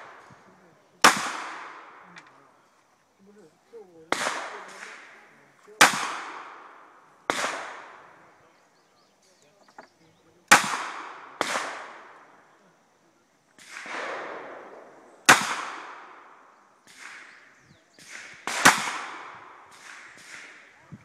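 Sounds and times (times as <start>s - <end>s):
faint gunshot reports: 1.0s - 2.4s, 4.1s - 8.2s, 10.5s - 12.3s, 13.6s - 20.8s.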